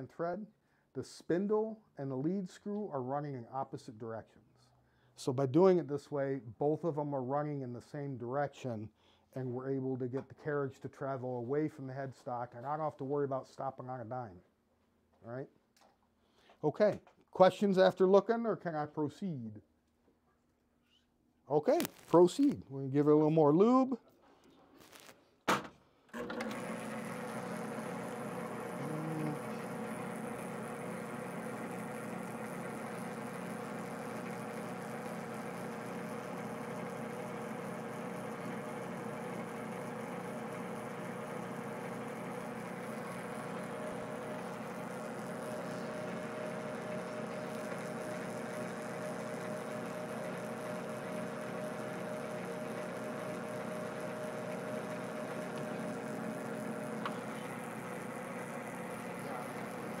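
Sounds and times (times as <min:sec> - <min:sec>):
metal lathe whirring: 0:26.2 - 1:00.0.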